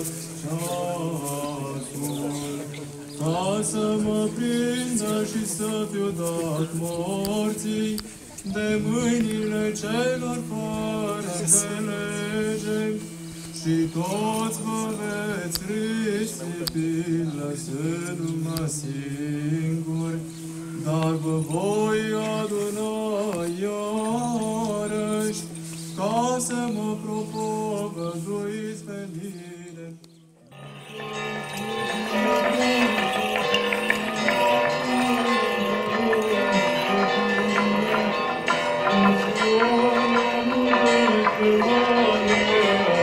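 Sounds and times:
choir chanting a hymn: 0.0s - 20.1s, 30.5s - 43.0s
held drone note: 30.5s - 43.0s.

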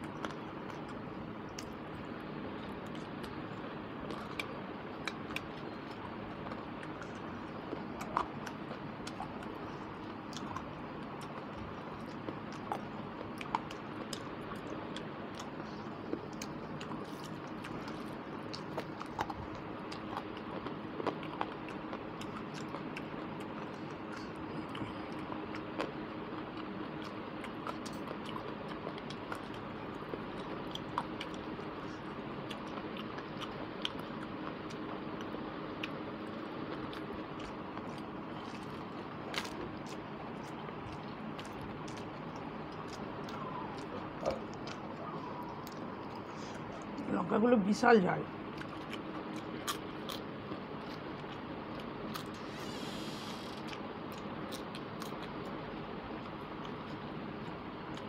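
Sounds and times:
person chewing food: 0.0s - 47.1s, 48.3s - 58.0s
faint hum: 0.0s - 58.0s
background hiss: 52.3s - 53.7s.

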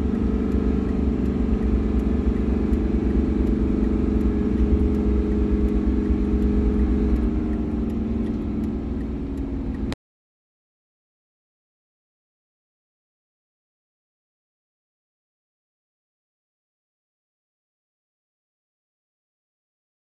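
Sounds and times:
diesel truck engine running: 0.0s - 10.0s.

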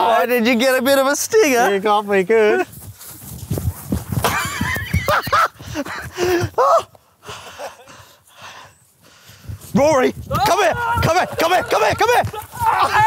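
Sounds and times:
footsteps in long grass: 2.0s - 5.8s, 8.8s - 10.4s
man's wavering cries: 6.5s - 6.9s, 10.3s - 13.0s.

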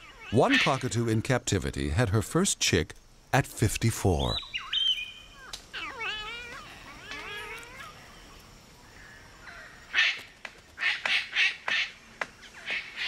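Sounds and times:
cockatoo whistled calls: 4.4s - 5.6s.

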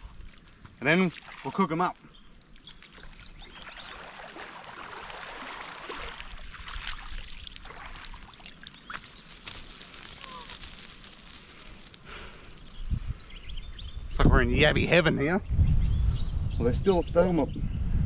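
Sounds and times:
water splashing: 0.0s - 12.6s
water streaming and dripping: 0.0s - 13.0s.

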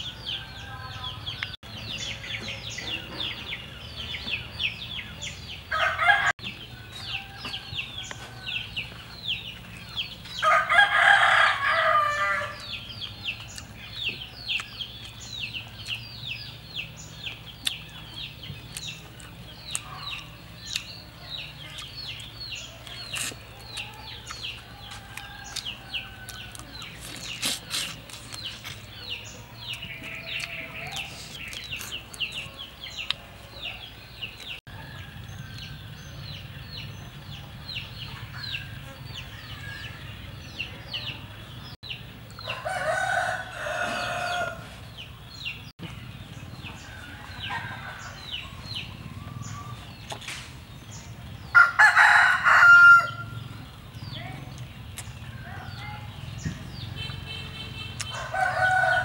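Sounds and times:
rooster crowing: 5.7s - 8.8s, 10.4s - 12.6s, 24.5s - 26.9s, 42.4s - 44.8s, 51.5s - 53.4s, 58.1s - 59.0s.

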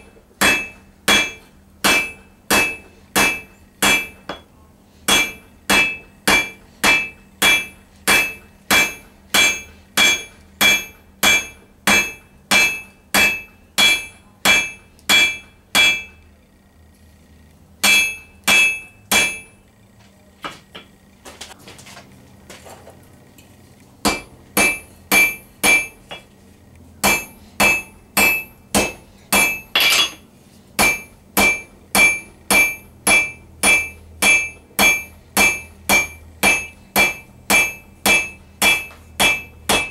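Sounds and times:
hammer striking steel on anvil: 0.0s - 4.5s, 5.1s - 16.2s, 17.8s - 19.6s, 24.0s - 26.3s, 27.0s - 39.9s
faint shuffling: 19.9s - 24.0s.

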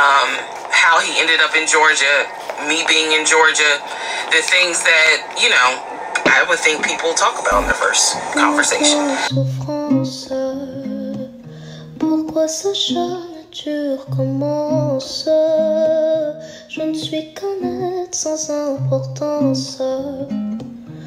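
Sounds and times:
repeating bass line: 7.5s - 7.9s
plucked acoustic guitar: 9.3s - 18.2s.

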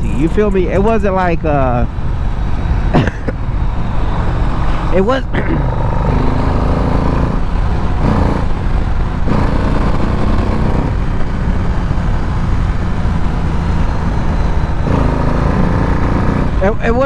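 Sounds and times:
road and wind noise: 0.0s - 17.0s
motorcycle engine running: 5.7s - 17.0s.

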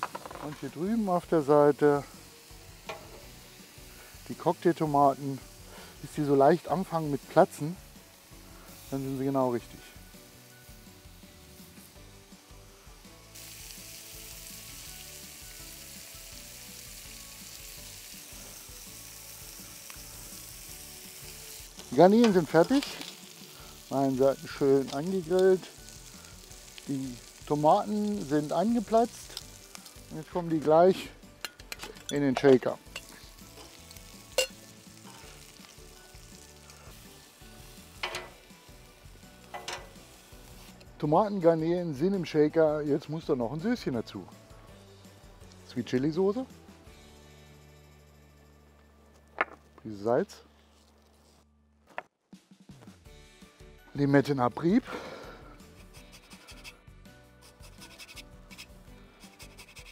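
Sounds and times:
prawns sizzling on a griddle: 0.0s - 49.2s, 54.0s - 59.9s
tongs scraping: 31.4s - 35.3s, 38.0s - 38.4s, 39.5s - 40.1s, 55.7s - 56.8s, 57.5s - 59.9s.

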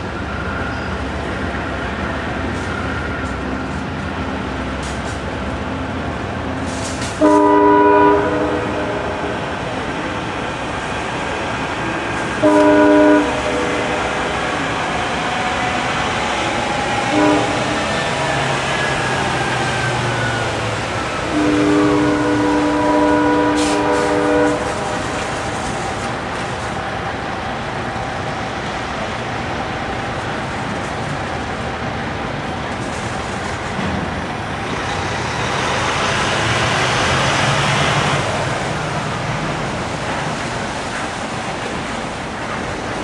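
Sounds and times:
train rumbling: 0.0s - 43.0s
train horn blasts: 7.0s - 9.5s, 12.3s - 14.7s, 17.0s - 19.0s, 21.0s - 26.1s.

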